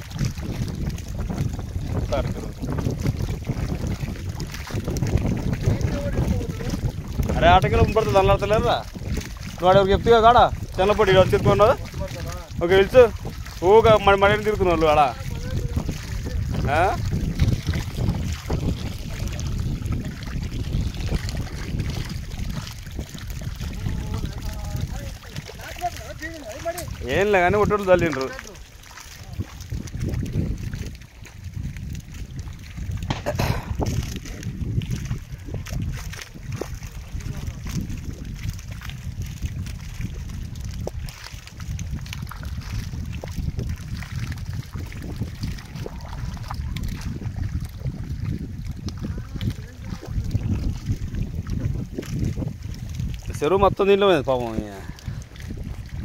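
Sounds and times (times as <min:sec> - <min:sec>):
fish splashing in shallow water: 0:00.0 - 0:56.0
wind buffeting microphone: 0:00.0 - 0:56.0.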